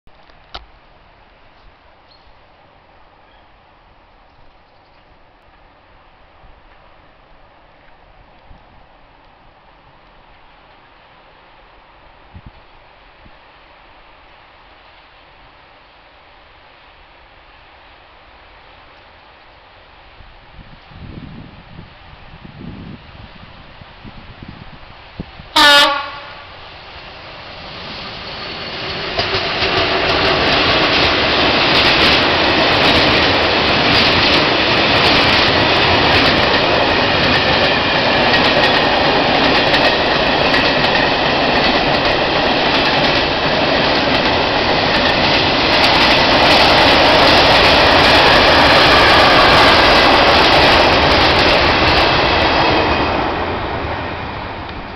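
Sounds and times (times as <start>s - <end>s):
freight train passing: 0.2s - 54.9s.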